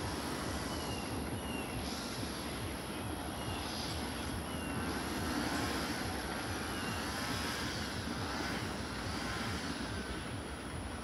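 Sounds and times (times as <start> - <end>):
faint wavering whine: 0.0 - 11.0
train wheels rumbling on rail: 0.0 - 11.0.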